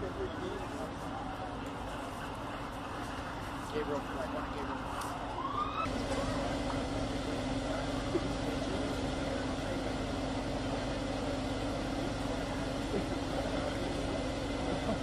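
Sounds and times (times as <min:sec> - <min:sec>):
street noise: 0:00.0 - 0:15.0
vehicle engine idling: 0:00.0 - 0:15.0.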